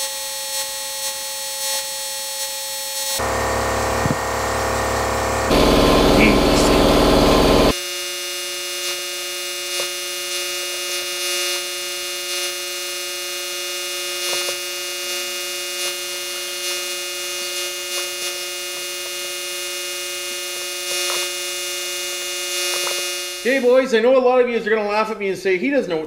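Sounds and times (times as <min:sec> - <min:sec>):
die grinder high whine: 0:03.1 - 0:07.8, 0:13.4 - 0:23.5.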